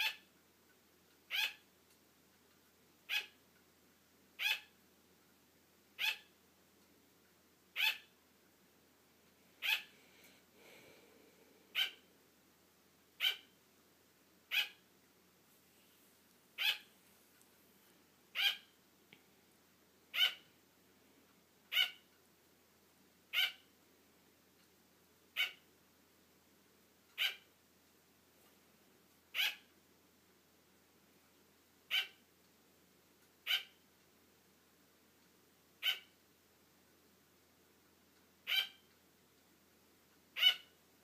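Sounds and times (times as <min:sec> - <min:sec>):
sugar glider barking: 0:00.0 - 0:00.3, 0:01.2 - 0:01.7, 0:03.0 - 0:03.4, 0:04.4 - 0:04.8, 0:05.9 - 0:06.4, 0:07.7 - 0:08.2, 0:09.6 - 0:10.0, 0:11.7 - 0:12.1, 0:13.1 - 0:13.6, 0:14.4 - 0:14.9, 0:16.6 - 0:16.9, 0:18.3 - 0:18.8, 0:20.1 - 0:20.5, 0:21.7 - 0:22.1, 0:23.3 - 0:23.7, 0:25.3 - 0:25.7, 0:27.2 - 0:27.6, 0:29.3 - 0:29.8, 0:31.8 - 0:32.3, 0:33.4 - 0:33.8, 0:35.8 - 0:36.2, 0:38.4 - 0:38.9, 0:40.3 - 0:40.8.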